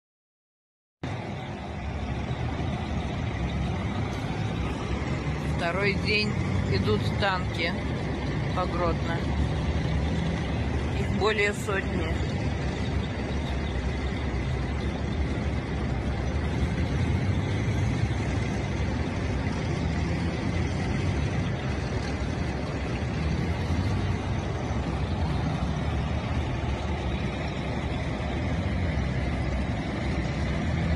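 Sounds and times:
armoured vehicles driving past: 0:01.0 - 0:30.9.

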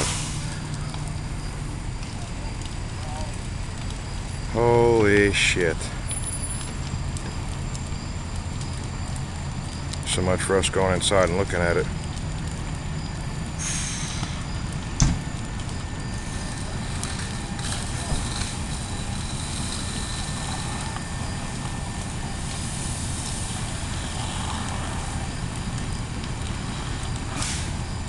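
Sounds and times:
hose spraying water: 0:00.0 - 0:03.4, 0:13.6 - 0:28.0
fire engines running: 0:00.0 - 0:28.0
house fire burning rumble: 0:00.0 - 0:28.0.

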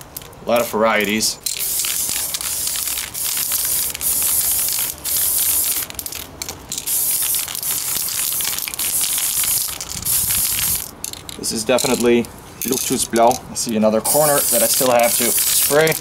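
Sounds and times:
spray paint can hissing: 0:01.4 - 0:12.0, 0:14.0 - 0:16.0.

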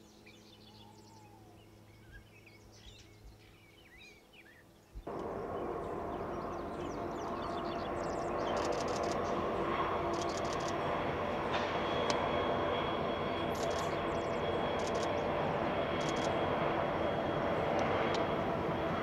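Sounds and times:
birds chirping: 0:00.0 - 0:19.0
diesel train rumble: 0:05.1 - 0:15.7.

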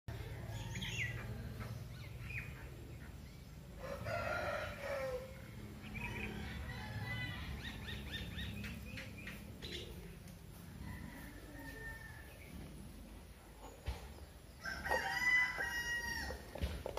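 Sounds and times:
small birds chirping: 0:00.1 - 0:15.6
rooster crowing: 0:03.8 - 0:05.4, 0:10.6 - 0:12.5, 0:14.6 - 0:16.6.

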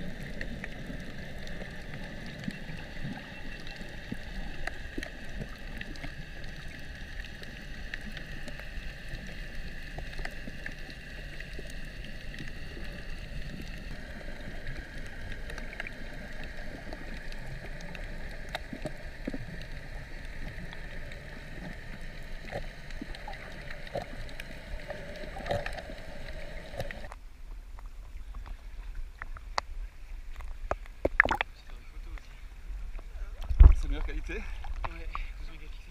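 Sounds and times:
low underwater rush: 0:00.0 - 0:27.1
faint clicks and crackles: 0:00.0 - 0:35.9
faint steady whine: 0:00.0 - 0:35.9.

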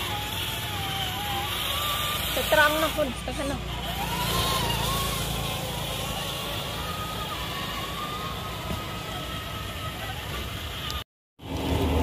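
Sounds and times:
toy car electric motor whining: 0:00.0 - 0:11.1.

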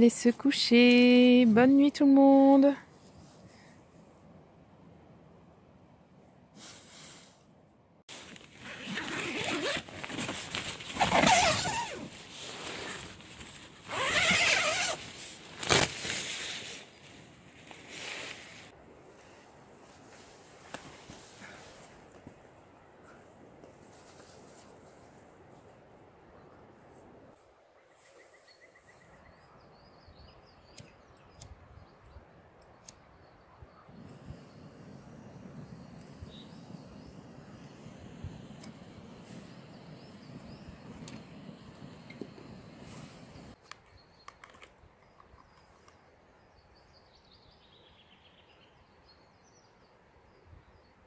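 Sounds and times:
tent zipper rasping: 0:08.1 - 0:16.8, 0:34.0 - 0:43.6
nylon fabric rustling: 0:08.1 - 0:18.7
burner flame rushing: 0:33.9 - 0:43.6.

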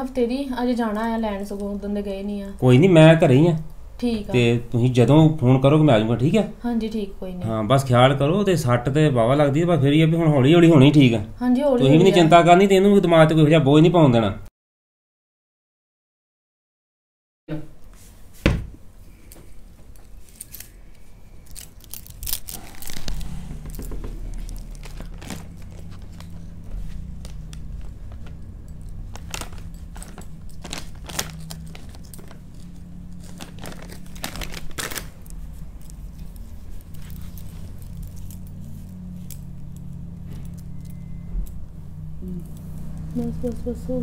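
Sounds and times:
tissues rustling: 0:17.9 - 0:44.0
low hum: 0:18.7 - 0:44.0
plastic packet crinkling: 0:21.4 - 0:28.4, 0:29.0 - 0:38.7.

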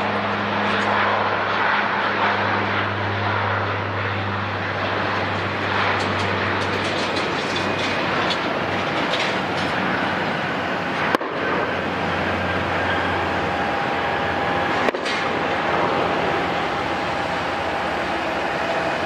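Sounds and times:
jet engines roaring: 0:00.0 - 0:19.0
faint high whines: 0:09.3 - 0:19.0.

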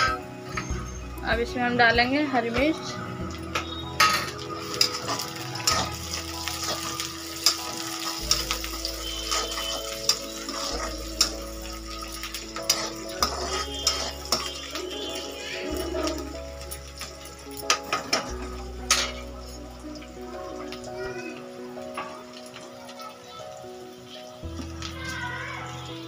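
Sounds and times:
frying in oil: 0:00.0 - 0:26.0
spoon scraping a metal pan: 0:06.6 - 0:11.4, 0:12.3 - 0:15.8.

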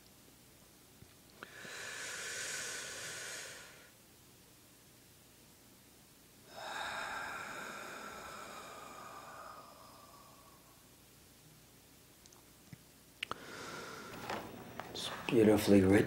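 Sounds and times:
faint steady hiss: 0:00.0 - 0:16.0
person breathing deeply: 0:01.4 - 0:04.0, 0:06.4 - 0:11.0, 0:13.3 - 0:15.2.

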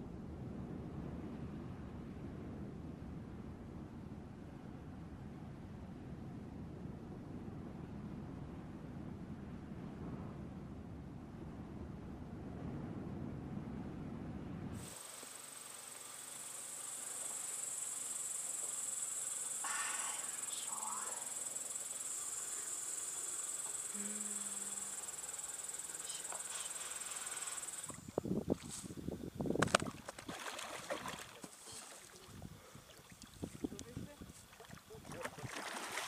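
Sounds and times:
crickets chirping: 0:14.8 - 0:36.0
wind buffeting microphone: 0:27.9 - 0:30.4, 0:32.2 - 0:35.6.

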